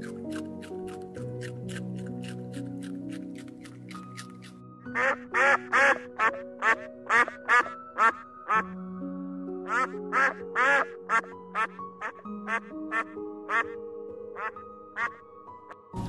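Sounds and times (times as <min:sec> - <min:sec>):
soft background music: 0:00.0 - 0:16.0
ducks quacking: 0:04.9 - 0:08.7, 0:09.6 - 0:13.8, 0:14.4 - 0:15.2.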